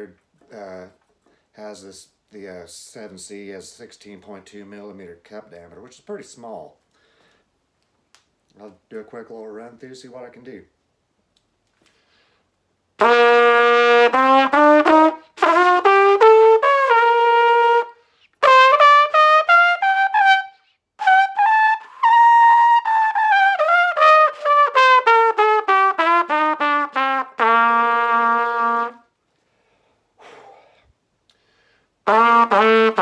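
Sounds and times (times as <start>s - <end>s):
breaths: 1.2s - 1.6s, 6.9s - 7.6s, 11.8s - 12.6s, 18.0s - 18.4s, 29.3s - 32.0s
trumpet playing a scale: 13.0s - 29.1s, 32.0s - 33.0s.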